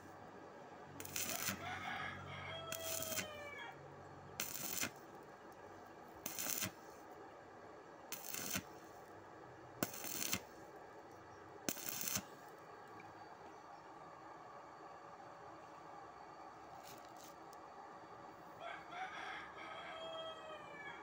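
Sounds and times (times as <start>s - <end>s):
welding arc crackling: 0.9s - 1.7s, 2.7s - 3.4s, 4.4s - 5.6s, 6.2s - 7.0s, 8.1s - 9.1s, 9.8s - 10.7s, 11.7s - 12.6s
rooster crowing: 1.1s - 3.8s, 18.6s - 21.0s.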